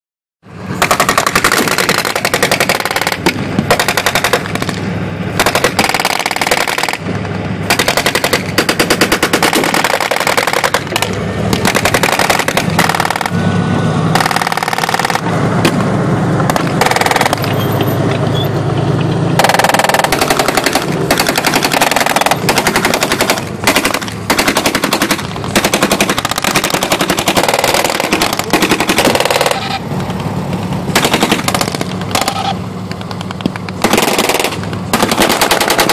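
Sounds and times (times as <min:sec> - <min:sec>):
armoured vehicle engine running: 0:00.4 - 0:35.9
machine guns firing bursts: 0:00.8 - 0:04.8, 0:05.4 - 0:07.0, 0:07.6 - 0:13.4, 0:14.2 - 0:15.3, 0:16.5 - 0:17.5, 0:19.4 - 0:29.8, 0:30.9 - 0:32.6, 0:33.8 - 0:35.9.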